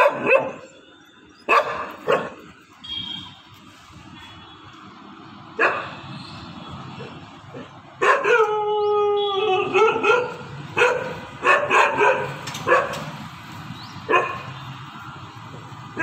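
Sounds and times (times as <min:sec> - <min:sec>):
dog barking: 0:00.0 - 0:00.7, 0:01.5 - 0:02.4, 0:05.6 - 0:06.0, 0:08.0 - 0:08.5, 0:09.7 - 0:13.1, 0:14.1 - 0:14.6.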